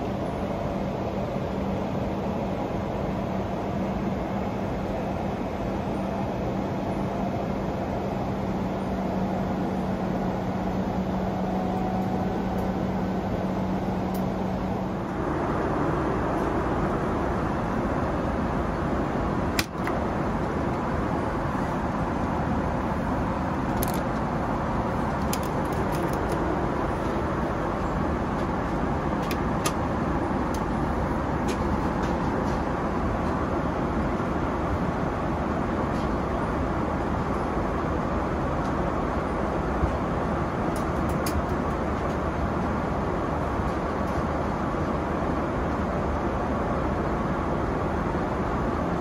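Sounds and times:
airliner cabin rushing hum: 0.0s - 49.0s
low steady tone: 8.9s - 18.9s.

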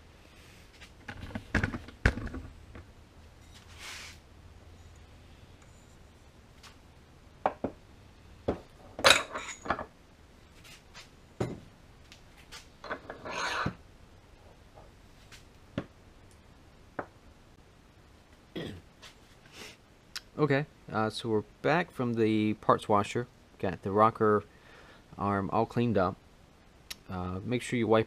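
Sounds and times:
scraping rustle: 3.4s - 4.2s, 10.5s - 11.1s
metal tools clinking and knocking: 8.9s - 9.9s.

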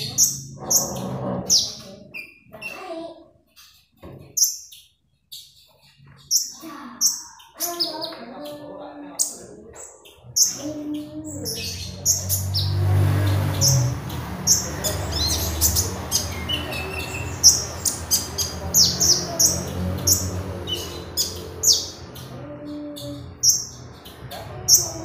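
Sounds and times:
bird singing high chirps: 3.6s - 25.0s.

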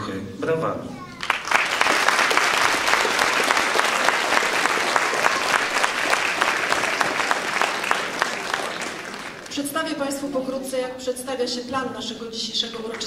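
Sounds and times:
audience applauding: 1.1s - 9.6s.

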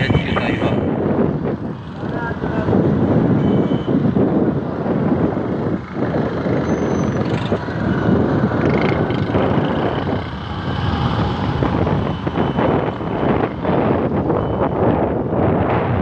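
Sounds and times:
passing motorcycle engines: 0.0s - 16.0s
wind buffeting microphone: 0.0s - 16.0s.

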